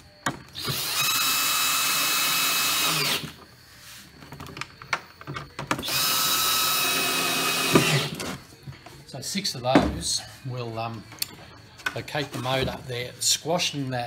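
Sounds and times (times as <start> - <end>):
cordless drill whining: 0.5 - 3.4, 5.8 - 8.4.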